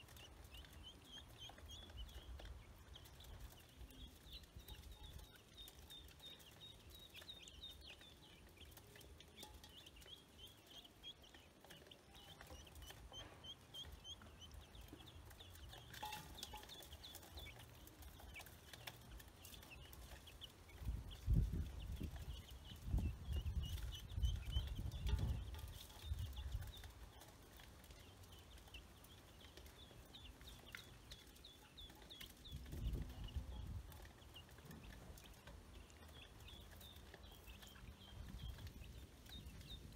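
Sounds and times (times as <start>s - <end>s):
chicks and ducklings peeping: 0.0s - 39.9s.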